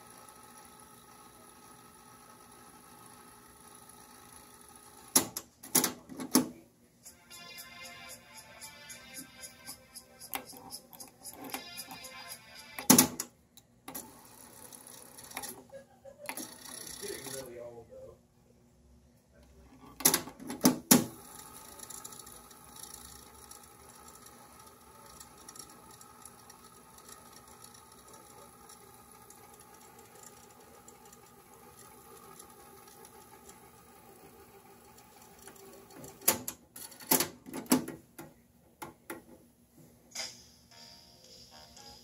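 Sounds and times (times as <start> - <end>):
tape mechanism whirring: 7.0 - 13.3, 16.3 - 17.5.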